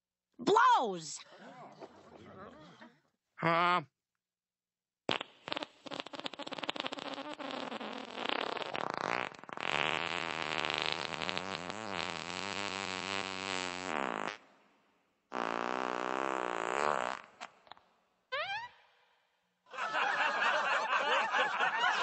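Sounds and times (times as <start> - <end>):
long spluttering fart: 5.1 - 14.6, 15.3 - 18.6.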